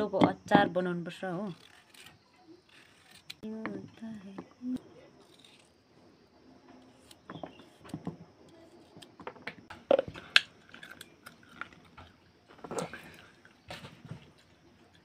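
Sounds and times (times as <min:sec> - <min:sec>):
food crunching by hand: 0:08.8 - 0:15.0.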